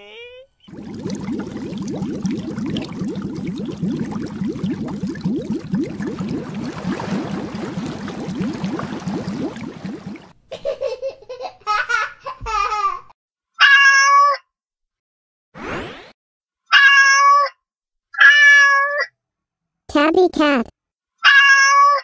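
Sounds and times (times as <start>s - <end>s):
bubbling water splash: 0.7s - 10.4s.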